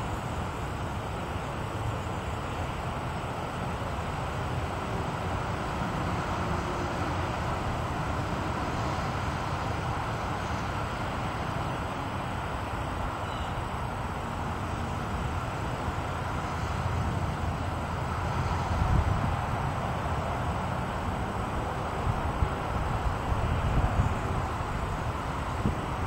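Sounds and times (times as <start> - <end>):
high wind buffeting microphone: 13.8 - 26.0.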